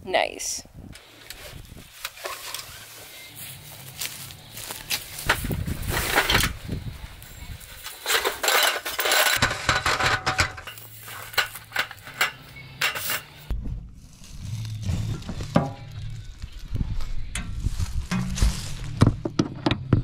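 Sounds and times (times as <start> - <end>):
metallic clattering and clicking: 7.8 - 13.3.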